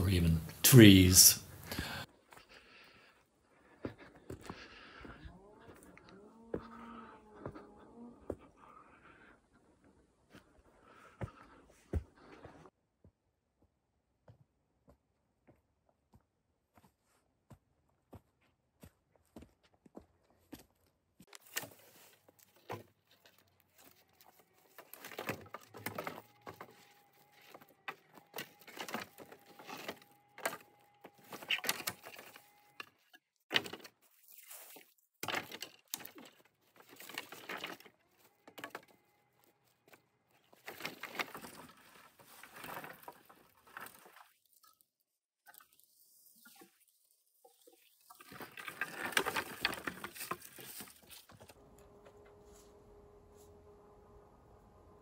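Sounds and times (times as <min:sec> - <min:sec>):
dry branches rustling and cracking: 0:21.3 - 0:44.6, 0:47.8 - 0:52.7.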